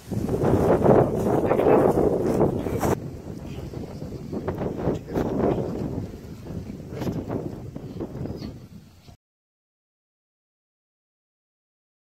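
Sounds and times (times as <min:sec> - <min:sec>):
wind buffeting microphone: 0:00.0 - 0:09.2.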